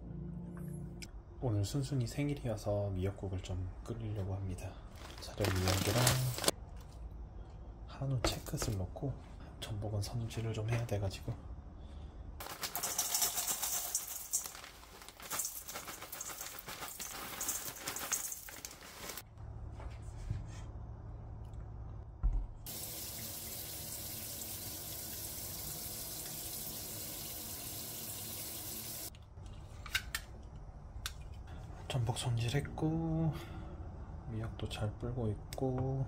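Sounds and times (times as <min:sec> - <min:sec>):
tap water running into sink: 0:22.7 - 0:29.1.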